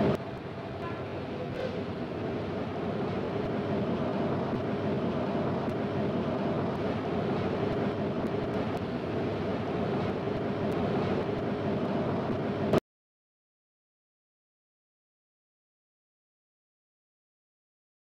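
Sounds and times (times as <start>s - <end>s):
subway train running: 0.0s - 12.8s.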